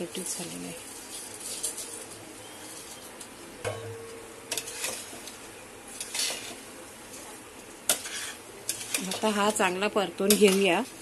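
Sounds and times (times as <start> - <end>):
faint sizzle: 0.0 - 11.0
spoon scraping pot: 4.5 - 6.7, 7.9 - 11.0.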